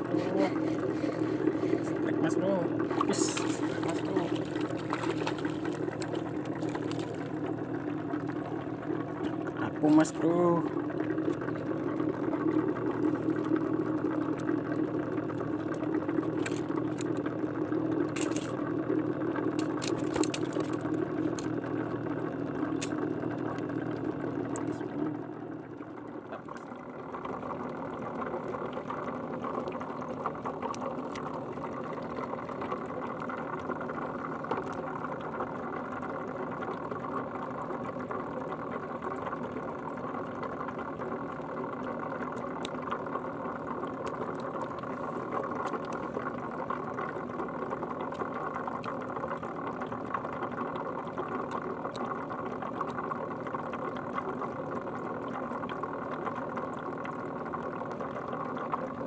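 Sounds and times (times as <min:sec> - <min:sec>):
small engine running: 0:00.0 - 0:07.2.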